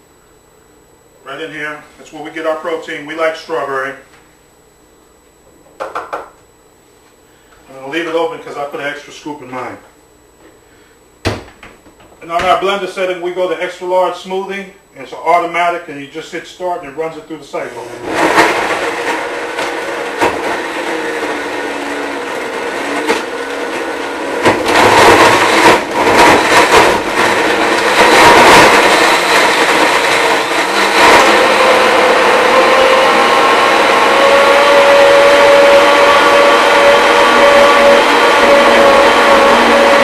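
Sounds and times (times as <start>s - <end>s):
blender whirring: 17.6s - 40.0s.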